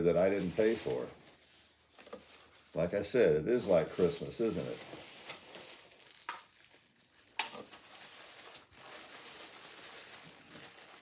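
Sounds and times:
bubble wrap crinkling: 0.1 - 3.0, 3.6 - 11.0
sharp crackles: 4.0 - 11.0.

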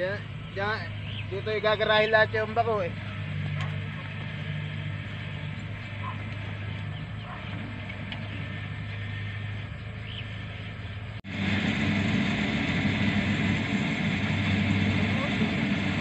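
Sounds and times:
combine harvester engine running: 0.0 - 16.0.

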